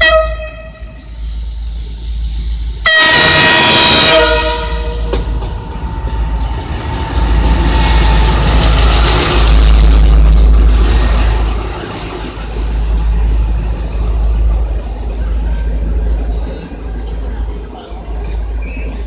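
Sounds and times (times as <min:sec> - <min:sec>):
locomotive horn blast: 0:00.0 - 0:01.0, 0:02.8 - 0:05.4
train engine and wheels rolling past: 0:00.0 - 0:19.0.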